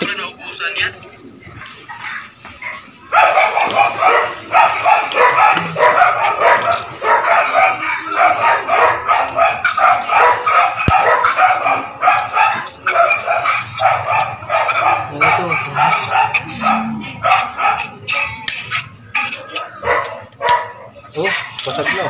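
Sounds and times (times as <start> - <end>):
dog barking rapidly: 1.9 - 22.0.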